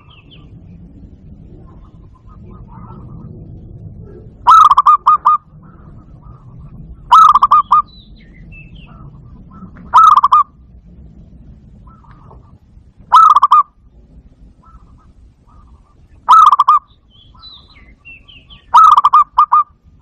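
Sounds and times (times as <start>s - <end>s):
dove stuttering coos: 0.0s - 7.9s, 8.5s - 10.7s, 11.4s - 19.8s.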